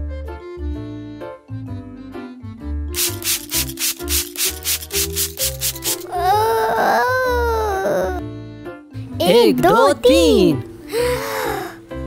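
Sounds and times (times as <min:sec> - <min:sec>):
background music: 0:00.0 - 0:12.0
spray bottle squirting: 0:03.0 - 0:06.3
woman mock-crying wail: 0:06.1 - 0:08.2.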